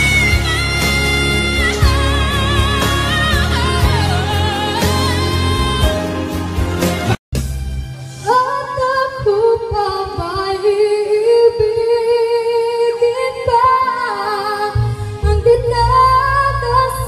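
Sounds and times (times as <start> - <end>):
woman singing slow melody: 0.0 - 6.2, 8.2 - 17.0
low bass accompaniment: 0.0 - 8.1.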